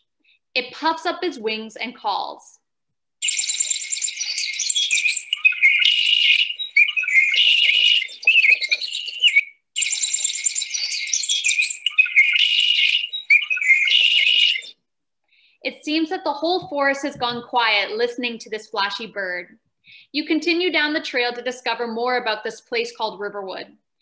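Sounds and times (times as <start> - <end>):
blackbird chirps and trills: 3.2 - 14.7.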